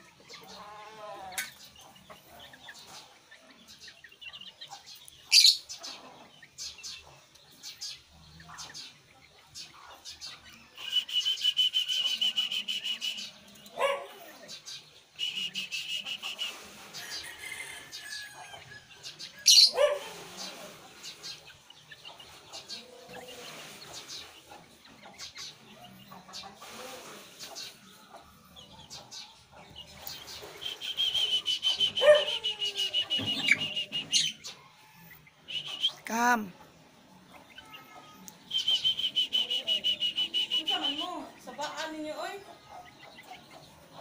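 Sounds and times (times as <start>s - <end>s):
parrot chirping: 5.3s - 5.7s, 19.4s - 20.0s, 30.4s - 34.4s.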